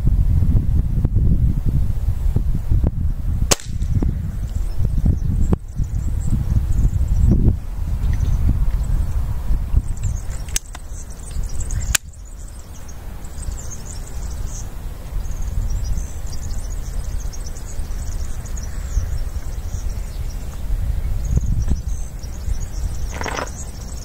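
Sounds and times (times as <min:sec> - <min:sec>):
wind rumble on microphone: 0:00.0 - 0:24.0
birds chirping: 0:03.5 - 0:24.0
air rifle clicks: 0:10.5 - 0:10.8.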